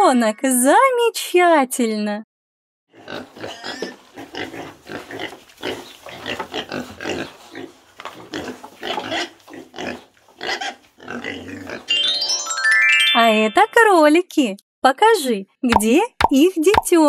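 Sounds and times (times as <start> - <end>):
piglets grunting: 2.9 - 11.9.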